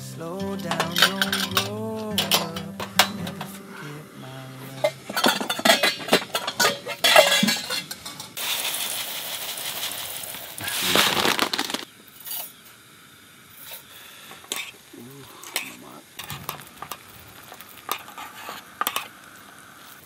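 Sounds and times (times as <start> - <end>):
metal cookware clinking: 0.5 - 3.6, 4.8 - 8.4
rice pouring into metal pot: 8.4 - 11.8.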